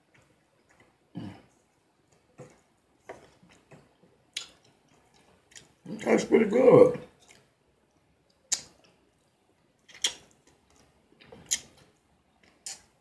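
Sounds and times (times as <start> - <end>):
mouth clicks while chewing: 4.3 - 5.8, 8.3 - 9.0, 9.8 - 13.0.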